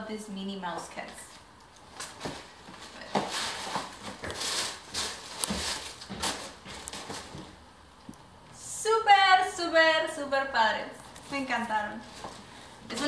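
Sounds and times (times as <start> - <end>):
tissue paper rustling: 1.9 - 7.6.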